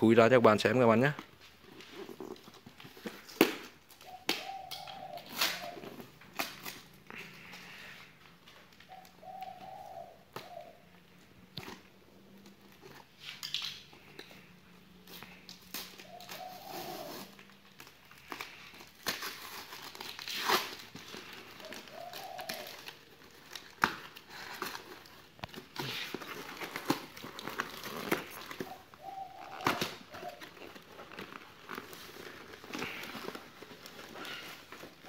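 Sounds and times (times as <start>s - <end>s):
cardboard box being torn open: 15.6s - 28.9s.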